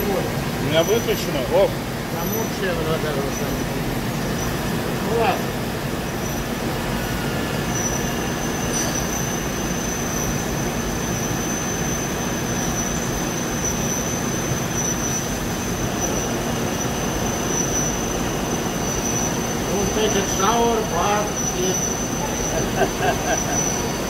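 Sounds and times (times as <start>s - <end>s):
high-pitched machine whine: 0.0s - 24.0s
machine hiss and hum: 0.0s - 24.0s.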